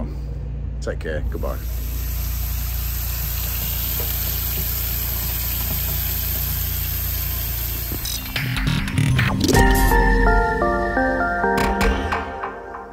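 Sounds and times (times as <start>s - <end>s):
steady low hum: 0.0s - 11.3s
tap water running into sink: 1.9s - 8.1s.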